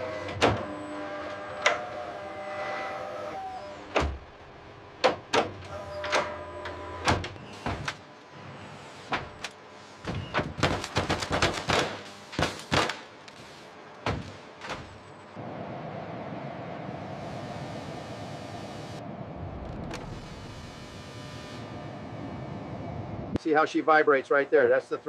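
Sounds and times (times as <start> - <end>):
steady mechanical hum: 0.0 - 25.0.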